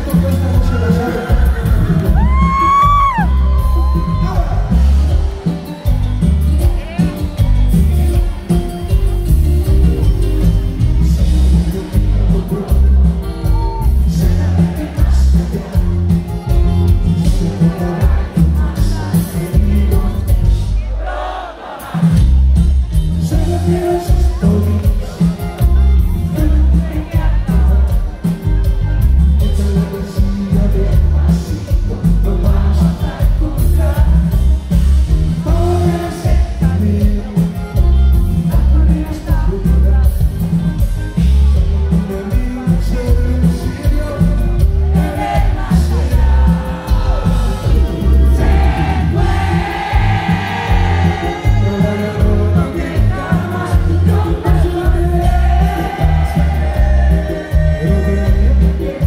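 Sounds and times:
drums and electric bass: 0.0s - 21.1s, 21.7s - 59.0s
keyboards: 0.0s - 59.0s
person singing: 35.4s - 40.5s, 41.2s - 59.0s.

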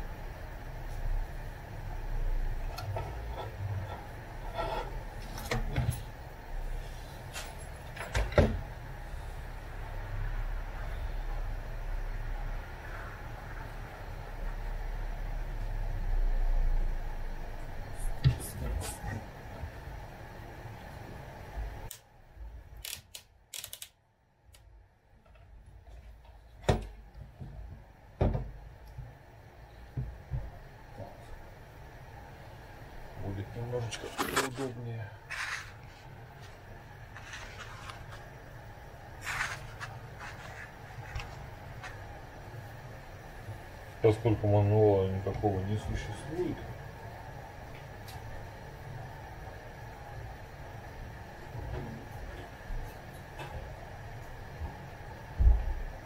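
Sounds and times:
low steady rumble: 0.0s - 22.9s
sharp clicks: 22.8s - 24.0s.

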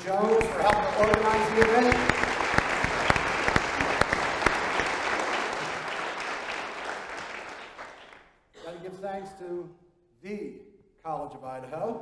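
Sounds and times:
audience applause: 0.0s - 8.3s.

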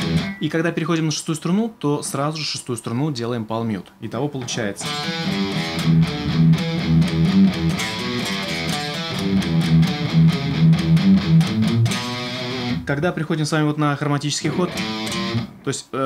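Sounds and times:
electric guitar riff: 0.0s - 0.5s, 4.5s - 13.0s, 14.4s - 15.7s.

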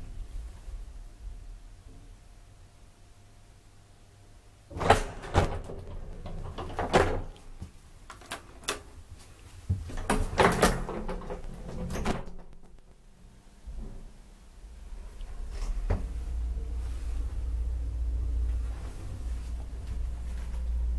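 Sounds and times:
elevator doors sliding and clunking: 4.7s - 7.6s, 9.8s - 12.8s.

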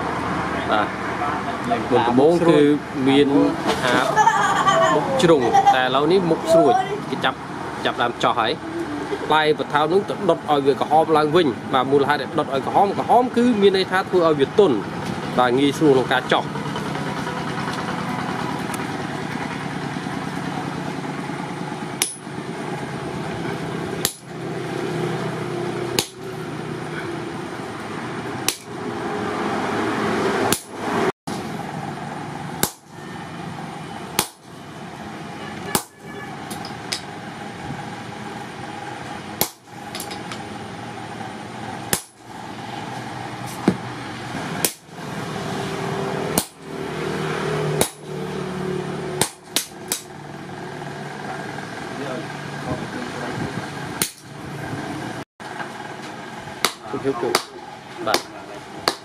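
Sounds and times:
hammer striking punch on metal: 22.0s - 22.3s, 24.0s - 24.3s, 26.0s - 26.2s, 30.5s - 30.7s, 32.6s - 32.9s, 34.2s - 34.4s, 35.7s - 37.1s, 39.4s - 40.2s, 41.9s - 42.2s, 46.4s - 46.6s, 47.8s - 48.1s, 49.2s - 50.1s, 56.6s - 59.0s.

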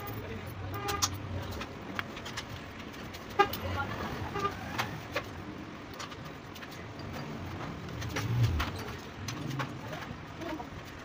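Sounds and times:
metal parts clicking and tapping: 0.0s - 3.7s
street traffic: 0.0s - 11.0s
low engine hum: 7.0s - 10.4s.

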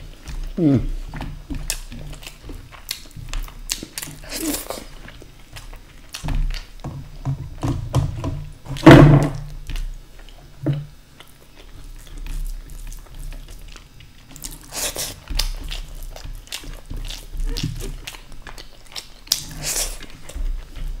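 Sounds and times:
wet mouth chewing: 0.1s - 6.8s, 11.1s - 21.0s.

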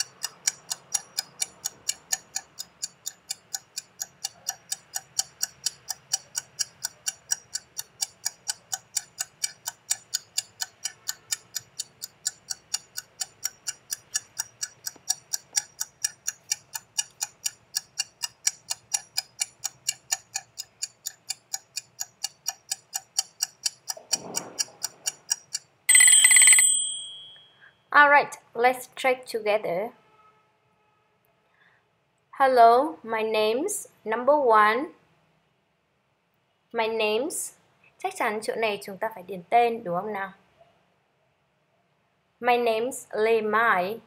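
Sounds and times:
timer ticking: 0.0s - 27.5s
time's-up alarm ringing: 25.9s - 27.5s.

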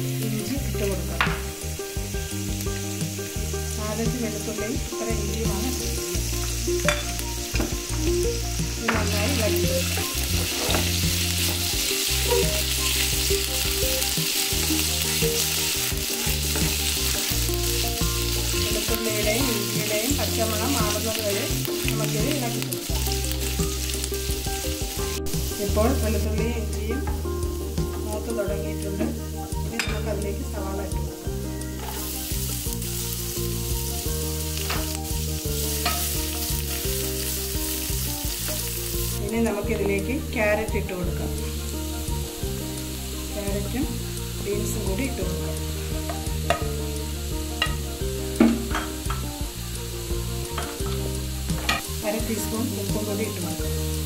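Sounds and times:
background music: 0.0s - 54.0s
garlic sizzling in hot oil: 0.0s - 54.0s
spatula scraping a pan: 8.8s - 24.0s, 31.8s - 33.4s, 34.5s - 39.2s.

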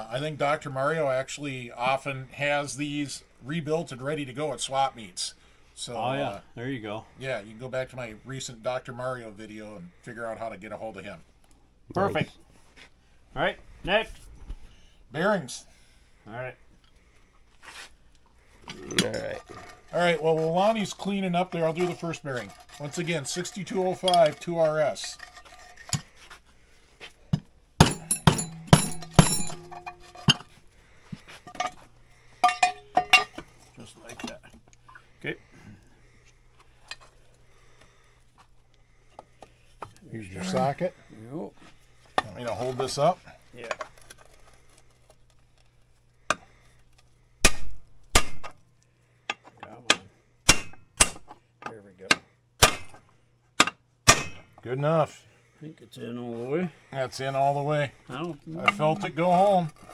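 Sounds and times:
hammer tapping on metal: 27.8s - 30.4s.

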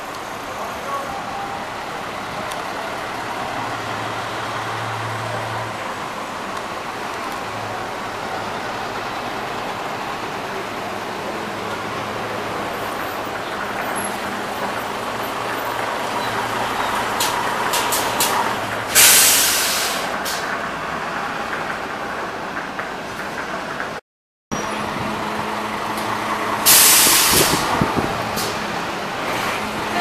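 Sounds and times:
diesel buses running: 0.0s - 30.0s
air brake hiss: 18.9s - 20.5s, 26.6s - 27.8s.

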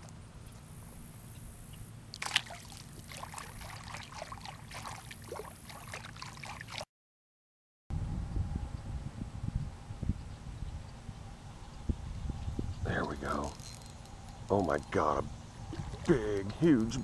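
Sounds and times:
water dripping and trickling: 2.2s - 6.8s, 15.6s - 17.0s
fish splashing into water: 2.2s - 6.9s
hands sloshing in water: 2.2s - 6.9s.

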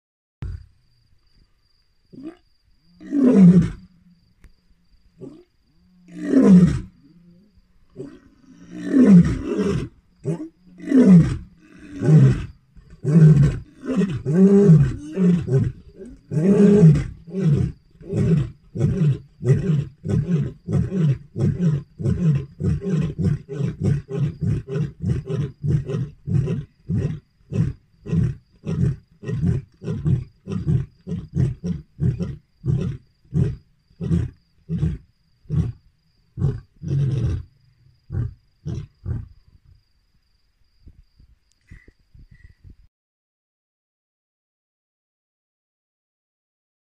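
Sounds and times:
lion grunting roars: 5.2s - 35.8s
lion roaring: 5.2s - 35.8s.

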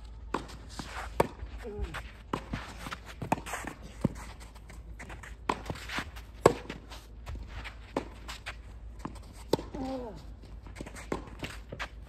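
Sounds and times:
tennis ball bouncing: 0.3s - 1.5s, 2.3s - 9.9s, 10.6s - 12.0s
shoes scuffing on court: 0.3s - 12.0s
racket striking tennis ball: 5.0s - 6.8s.

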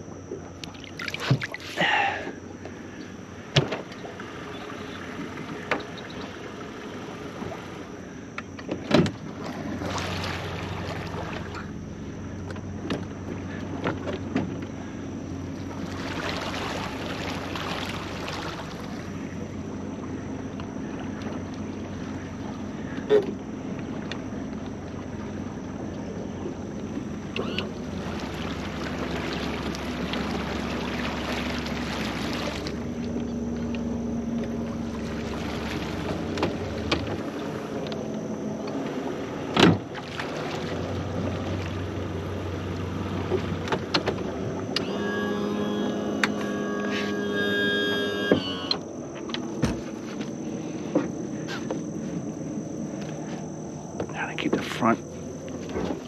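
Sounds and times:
small boat motor running: 0.0s - 56.0s
rushing water: 0.8s - 1.8s.

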